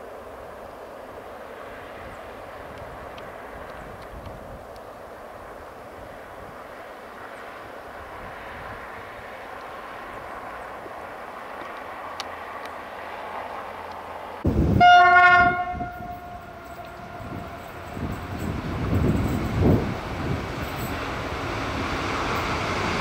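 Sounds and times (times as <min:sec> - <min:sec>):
diesel locomotive rumble: 0:00.0 - 0:23.0
locomotive air horn blast: 0:14.5 - 0:18.4.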